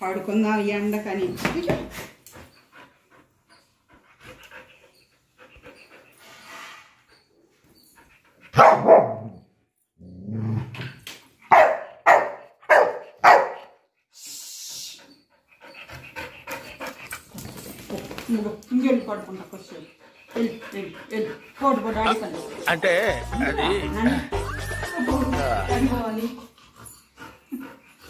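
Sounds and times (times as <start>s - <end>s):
dog barking: 8.5s - 9.4s, 11.5s - 13.8s
dog growling low: 10.0s - 10.8s.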